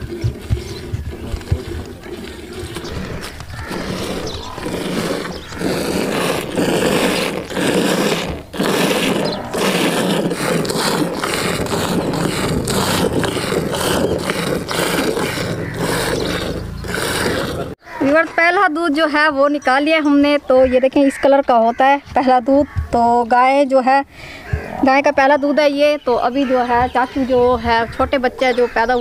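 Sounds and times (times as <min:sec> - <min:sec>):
milk squirts hissing into pail: 0:03.6 - 0:17.6.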